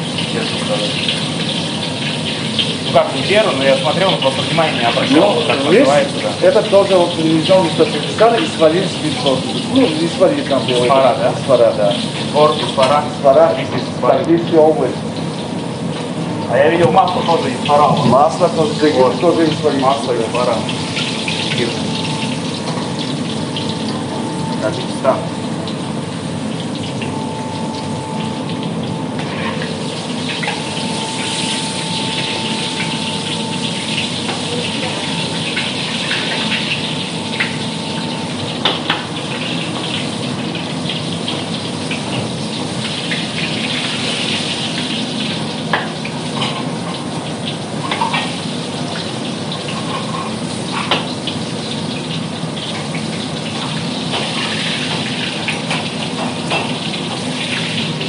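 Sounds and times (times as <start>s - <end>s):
thin steady whine: 2.8s - 41.7s.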